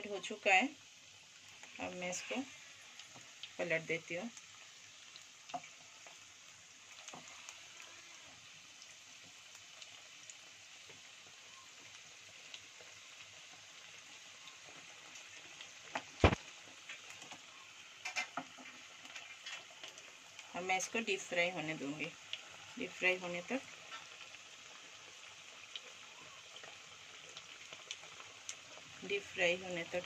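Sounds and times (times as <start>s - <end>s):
food deep-frying in oil: 0.0s - 30.0s.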